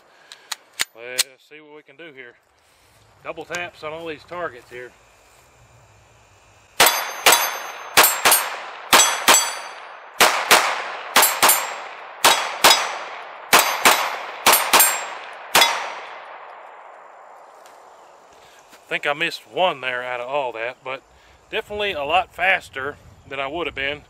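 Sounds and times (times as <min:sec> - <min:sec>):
steel targets ringing: 0:06.8 - 0:10.2, 0:11.2 - 0:16.0
pistol shots: 0:06.8 - 0:16.6.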